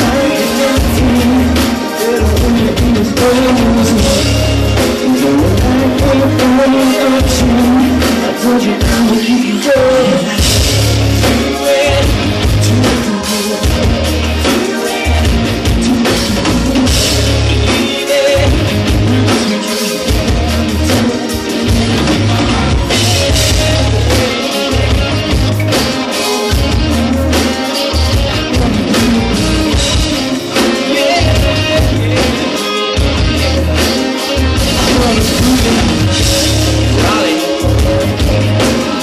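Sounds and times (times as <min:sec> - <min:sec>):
bass: 0:00.0 - 0:39.0
drum kit: 0:00.0 - 0:39.0
electric guitars: 0:00.0 - 0:39.0
sung lead vocal: 0:00.0 - 0:39.0.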